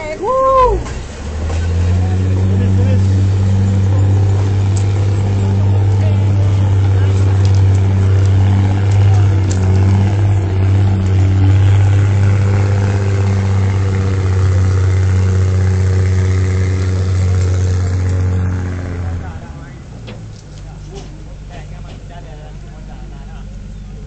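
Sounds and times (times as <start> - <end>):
diesel locomotive engine humming: 0.0 - 24.0.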